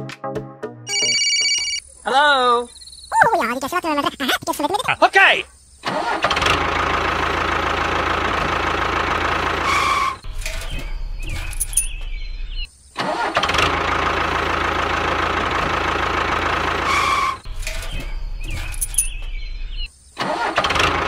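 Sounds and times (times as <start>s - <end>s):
engine running: 5.8s - 21.0s.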